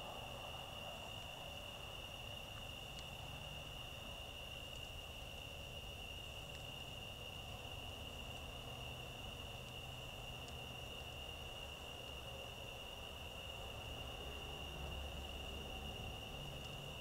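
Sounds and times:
insect chorus drone: 0:00.0 - 0:17.0
faint ticks: 0:02.3 - 0:12.3, 0:14.8 - 0:17.0.

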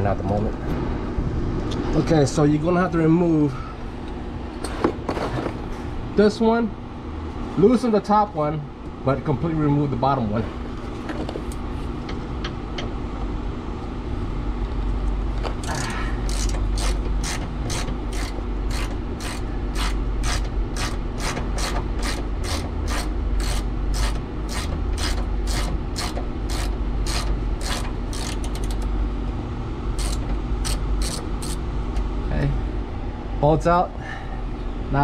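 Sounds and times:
socket ratchet clicking: 0:16.3 - 0:28.9, 0:30.0 - 0:31.6.

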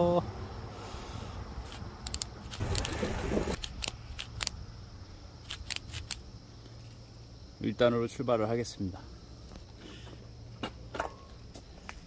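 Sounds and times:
bicycle gear shifter clicking: 0:01.7 - 0:03.0, 0:03.6 - 0:04.6, 0:05.5 - 0:06.2.

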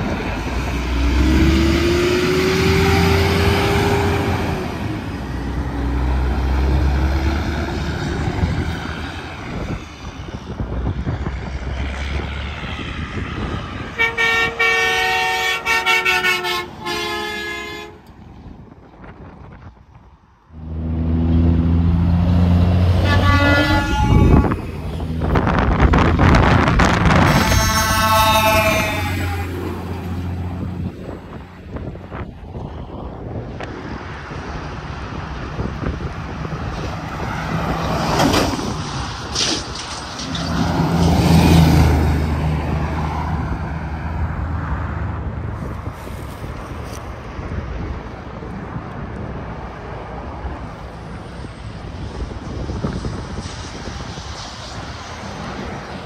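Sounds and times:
truck diesel drone: 0:00.0 - 0:19.6, 0:20.4 - 0:56.0
truck rushing by: 0:00.0 - 0:56.0
air horn blast: 0:13.9 - 0:18.1, 0:22.9 - 0:24.9, 0:27.1 - 0:30.2.

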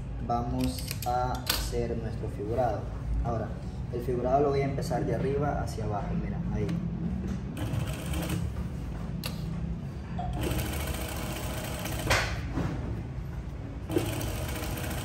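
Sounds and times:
sewing machine running: 0:07.6 - 0:08.5, 0:10.3 - 0:12.2, 0:13.9 - 0:15.0.

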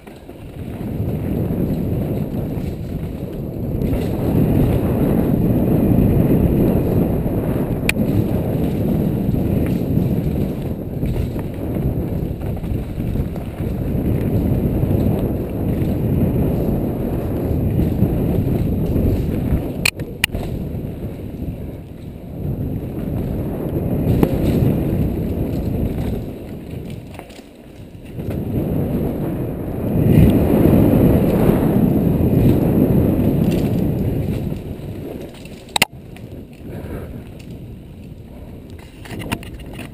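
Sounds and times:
tyres rumbling over dirt trail: 0:00.0 - 0:39.9
wind on camera microphone: 0:00.0 - 0:39.9
sharp clacks: 0:35.7 - 0:35.9.

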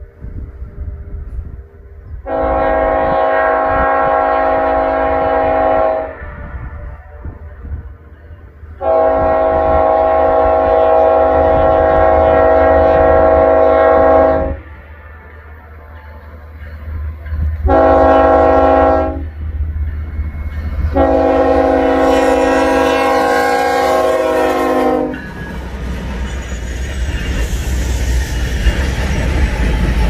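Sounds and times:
train air horn blasts: 0:02.2 - 0:07.8, 0:08.8 - 0:15.1, 0:17.6 - 0:19.4, 0:20.9 - 0:25.2.

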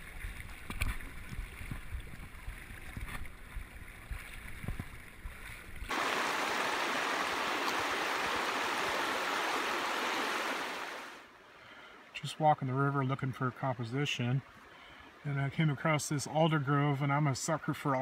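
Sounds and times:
water sloshing and splashing: 0:00.0 - 0:11.2
river rushing over gravel: 0:05.9 - 0:11.3.

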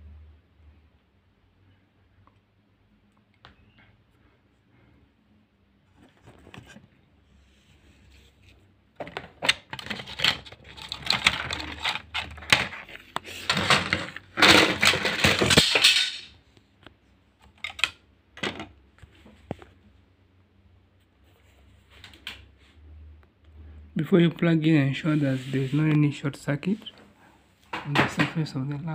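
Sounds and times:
hard objects clattering and clicking: 0:09.0 - 0:16.4.

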